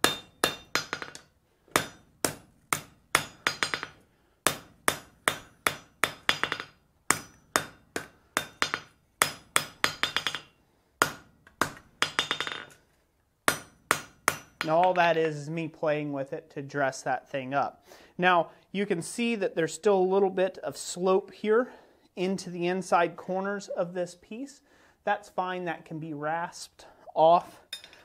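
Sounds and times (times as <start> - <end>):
hammer striking steel on anvil: 0.0 - 12.8, 13.5 - 15.0.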